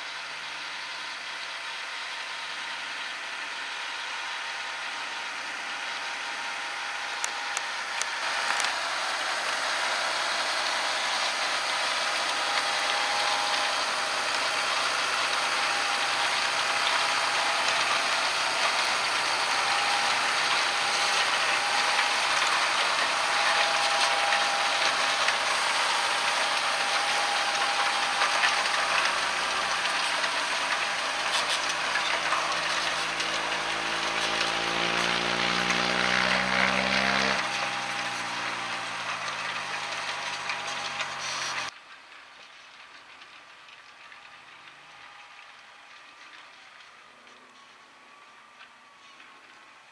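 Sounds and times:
tractor diesel engine under load: 0:00.0 - 0:41.8.

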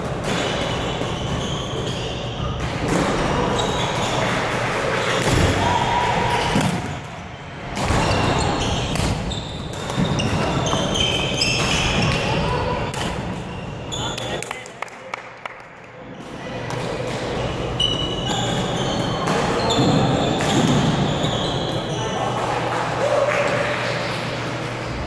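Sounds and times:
shoes squeaking on wooden court: 0:00.3 - 0:04.4, 0:07.9 - 0:14.4, 0:16.4 - 0:22.2.

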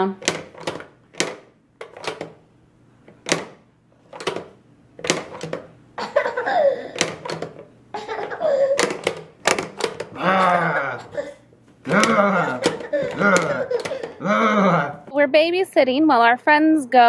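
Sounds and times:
voice sounds: 0:10.2 - 0:15.3
plastic toy clacking: 0:11.9 - 0:14.2.

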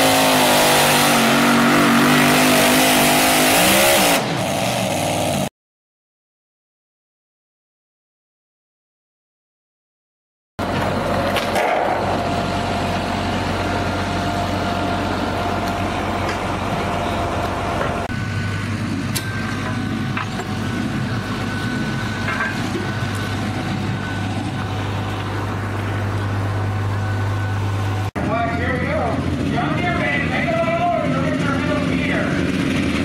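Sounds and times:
tractor engines idling: 0:10.6 - 0:33.0.

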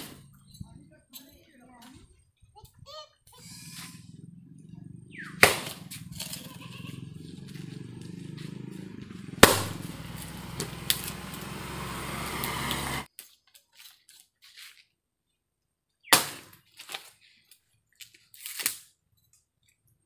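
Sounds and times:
axe chopping log: 0:05.2 - 0:06.0, 0:09.4 - 0:11.7, 0:16.1 - 0:16.6.

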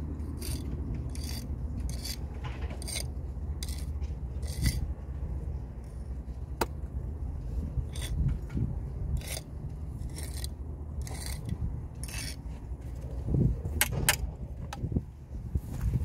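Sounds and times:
brick jointer scraping mortar: 0:00.0 - 0:04.9, 0:07.8 - 0:08.5, 0:09.1 - 0:12.4.

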